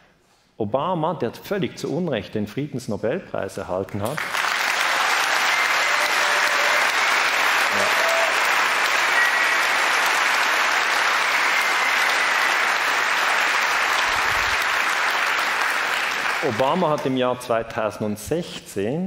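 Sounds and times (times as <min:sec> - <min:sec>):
audience applauding: 0:04.0 - 0:17.2.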